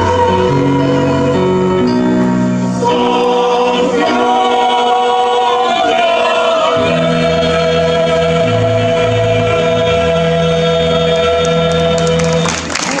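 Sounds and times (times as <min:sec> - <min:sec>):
choir holding a chord: 0:00.0 - 0:12.6
electric keyboard: 0:00.0 - 0:12.7
audience clapping: 0:11.4 - 0:13.0.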